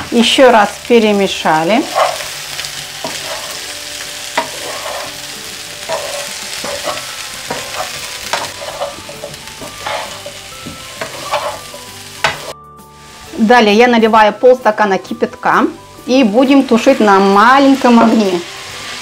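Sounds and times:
vegetables sizzling in oil: 0.0 - 19.0
wooden spatula scraping pan: 1.8 - 2.4, 3.0 - 3.7, 4.4 - 5.3, 5.9 - 12.5.

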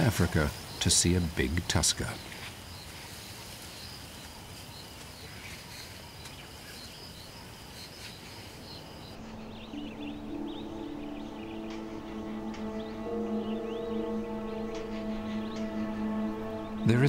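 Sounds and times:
insects chirping: 0.0 - 17.0
soft ambient music: 9.0 - 17.0.

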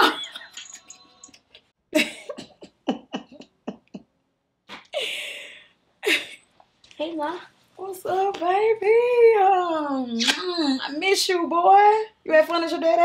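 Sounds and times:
woman laughing: 0.0 - 0.6, 1.9 - 4.1, 4.8 - 6.4.

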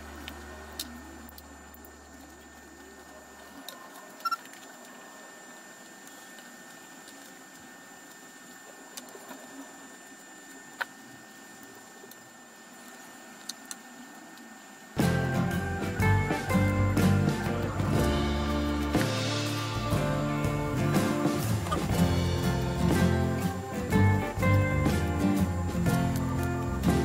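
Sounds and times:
room hiss: 4.8 - 27.0
background music: 15.0 - 27.0.

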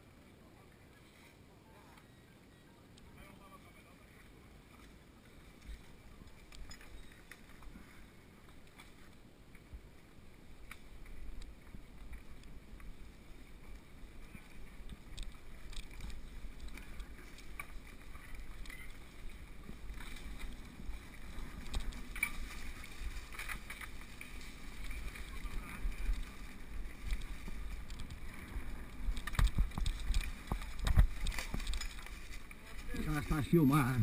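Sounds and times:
bike clicks and knocks: 26.1 - 32.6.

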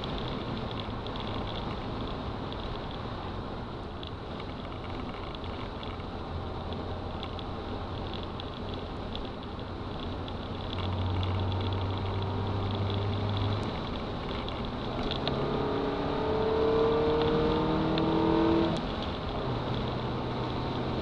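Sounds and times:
car engine revving from cabin: 15.2 - 18.8.

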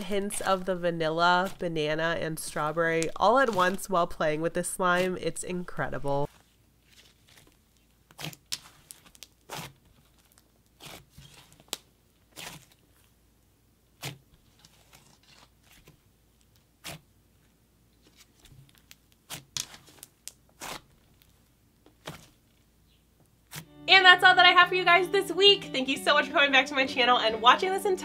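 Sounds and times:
slime crackling and popping: 6.2 - 13.1, 18.2 - 22.4.

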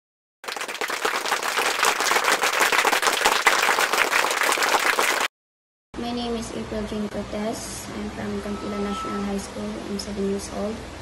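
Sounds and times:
crowd clapping: 0.4 - 5.3.

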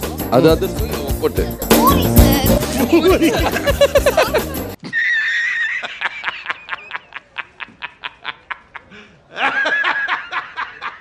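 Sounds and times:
man laughing hard: 2.7 - 11.0.

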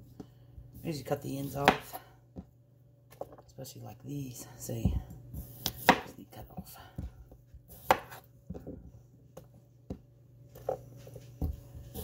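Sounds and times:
faint steady hum: 0.0 - 12.0
knife cutting potatoes: 0.8 - 2.1, 5.3 - 6.3, 7.7 - 8.3, 11.4 - 12.0.

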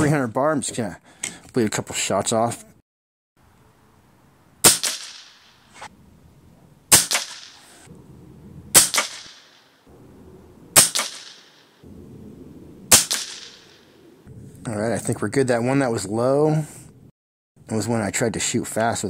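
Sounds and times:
air rifle shots: 4.6 - 5.9, 6.9 - 7.9, 8.7 - 9.6, 10.7 - 11.7, 12.9 - 14.2.

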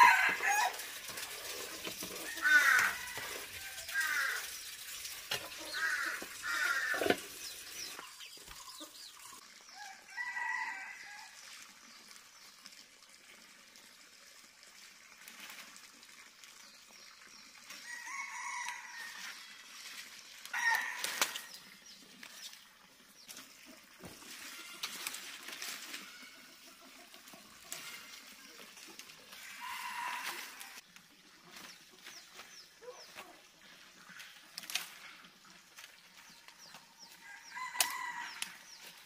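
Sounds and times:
rooster crowing: 0.0 - 0.8, 2.3 - 4.4, 9.8 - 11.2
hens clucking: 26.2 - 30.6.

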